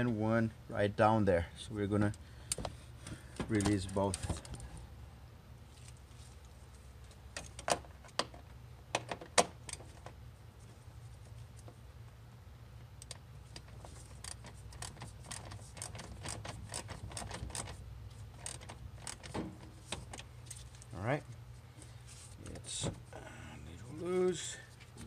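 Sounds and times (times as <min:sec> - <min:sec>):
steady low hum: 0:00.0 - 0:25.0
ratchet clicking: 0:13.0 - 0:17.8, 0:18.4 - 0:19.3
sharp clicks and knocks: 0:13.0 - 0:17.8.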